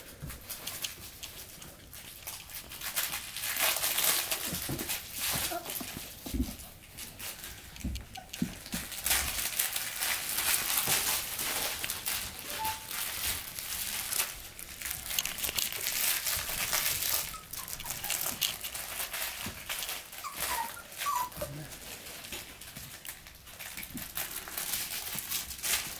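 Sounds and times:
toys and bedding crinkling: 0.0 - 25.9
puppy squeaks: 12.4 - 13.0, 17.0 - 18.7, 20.1 - 21.5.

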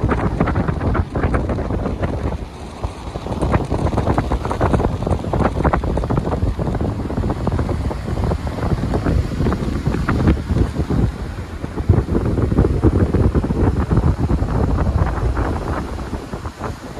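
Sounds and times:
wind buffeting the microphone: 0.0 - 16.9.

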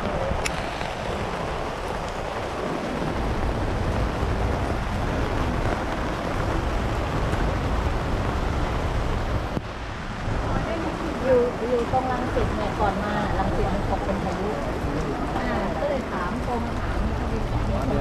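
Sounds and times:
heavy rain on canopies: 0.0 - 18.0
wind buffeting microphone: 0.0 - 18.0.

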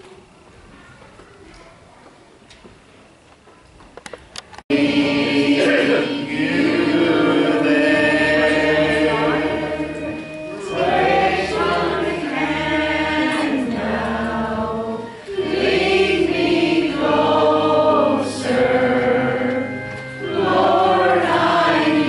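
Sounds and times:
choir singing a hymn: 4.7 - 22.0.

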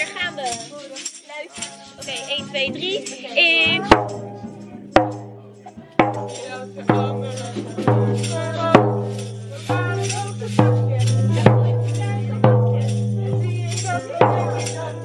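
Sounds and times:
tambourines jingling: 0.0 - 15.0
frame drum struck with mallet: 3.6 - 15.0.

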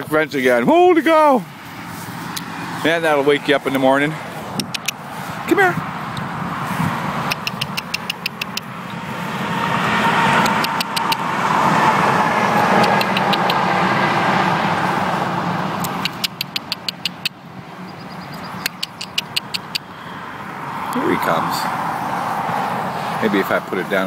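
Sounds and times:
vehicle passing by: 0.0 - 24.0
rapid sharp high ticks: 4.6 - 5.0, 7.2 - 9.0, 10.4 - 11.3, 12.6 - 13.7, 15.8 - 17.4, 18.3 - 19.9.

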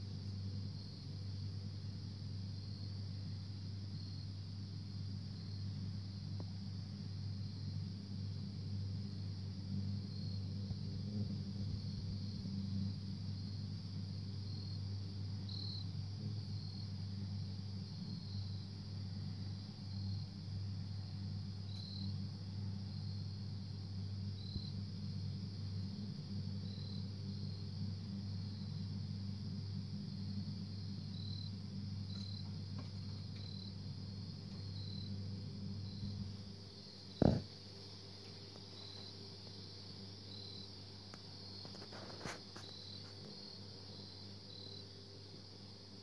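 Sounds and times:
low steady hum: 0.0 - 46.0
thump: 37.2 - 37.4.

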